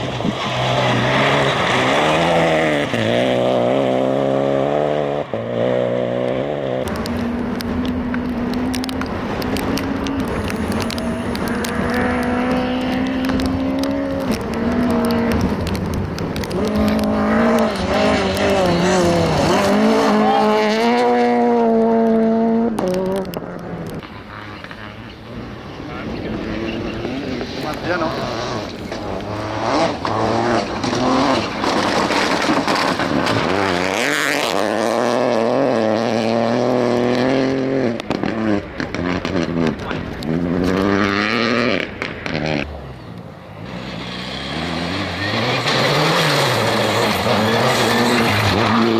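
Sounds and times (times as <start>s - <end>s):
rally car engine revving: 0.0s - 42.8s, 43.6s - 48.9s
gravel crunching: 0.0s - 48.9s
stones ticking under tyres: 6.2s - 20.0s, 20.9s - 25.0s, 26.6s - 43.3s
gravel hissing: 6.9s - 20.4s.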